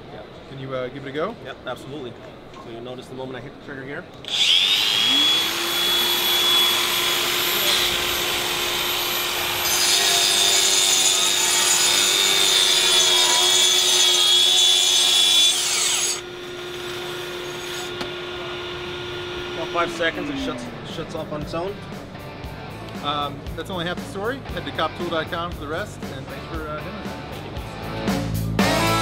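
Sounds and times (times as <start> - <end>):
dust extraction vacuum running: 4.3 - 9.7, 16.2 - 22.7
grinder whining on concrete: 4.3 - 21.8.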